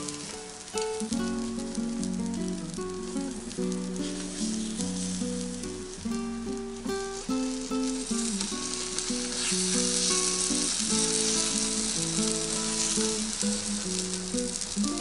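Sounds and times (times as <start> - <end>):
batter sizzling on hot plate: 0.0 - 15.0.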